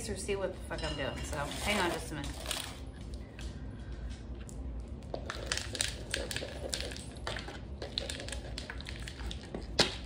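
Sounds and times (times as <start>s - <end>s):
potting mix crunching and rattling: 5.2s - 10.0s.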